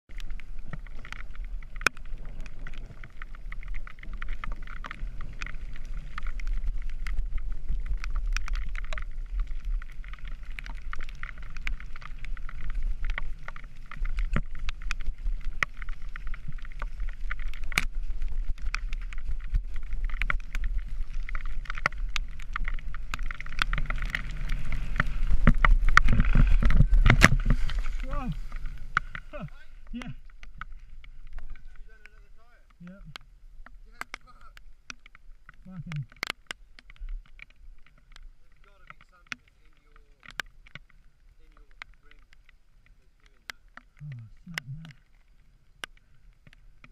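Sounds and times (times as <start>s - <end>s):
bike tyres on dirt trail: 0.0s - 46.9s
wind rumble on microphone: 0.1s - 32.2s.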